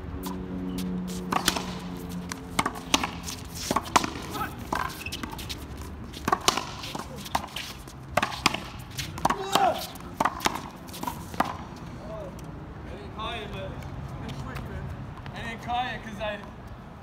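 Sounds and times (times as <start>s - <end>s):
players calling: 0.7s - 12.3s
racquetball hitting racquets and wall: 1.3s - 11.8s.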